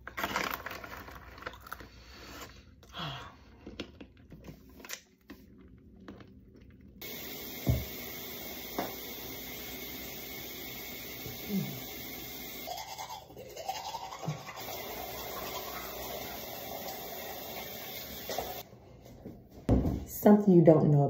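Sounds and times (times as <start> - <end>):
peanuts being crunched: 0.0 - 1.9
snack bag rustling: 0.0 - 2.8
steady hiss: 7.0 - 12.7
thump: 7.6 - 7.9.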